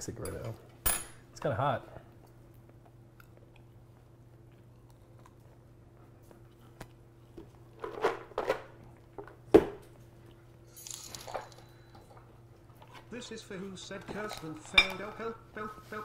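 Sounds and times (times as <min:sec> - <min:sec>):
faint steady hum: 0:00.0 - 0:16.0
utensils clicking and clattering: 0:10.7 - 0:12.1.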